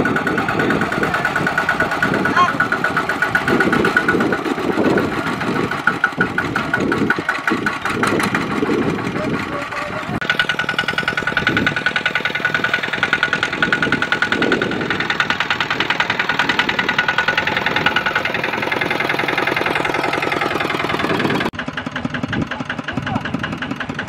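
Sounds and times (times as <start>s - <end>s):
diesel engine chugging: 0.0s - 24.0s.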